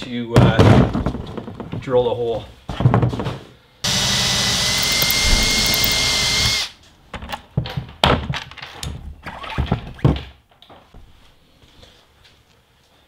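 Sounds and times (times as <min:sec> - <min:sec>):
cordless drill whining: 0:03.9 - 0:06.7
knocks and clicks of parts handled: 0:04.7 - 0:06.1.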